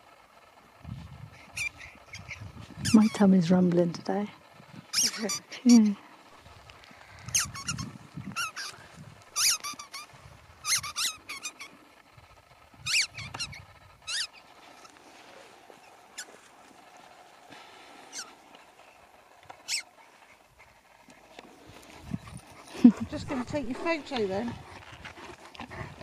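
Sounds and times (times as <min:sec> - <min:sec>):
rubber ball squeaking: 0:01.4 - 0:03.2, 0:04.9 - 0:05.8, 0:07.2 - 0:08.8, 0:09.4 - 0:11.7, 0:12.8 - 0:14.4, 0:19.6 - 0:19.9
dog chewing thuds: 0:19.4 - 0:26.0.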